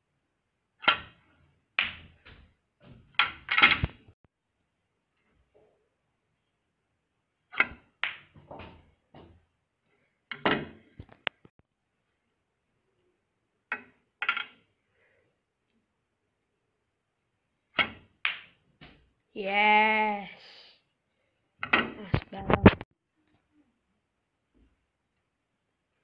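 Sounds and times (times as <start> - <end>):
snooker balls clicking together: 1.8 - 2.4.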